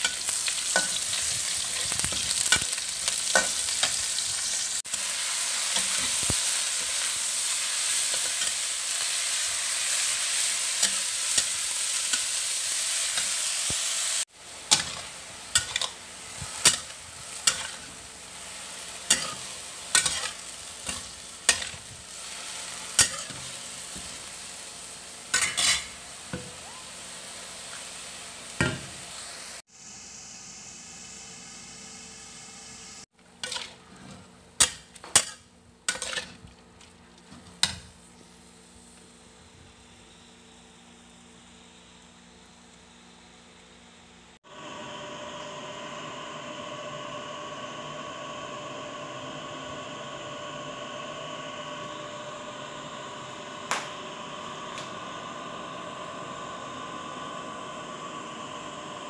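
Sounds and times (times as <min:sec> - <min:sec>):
food sizzling in oil in a wok: 0:00.0 - 0:42.1, 0:44.4 - 0:59.0
spatula scraping and knocking pan: 0:14.7 - 0:18.0, 0:33.4 - 0:37.8.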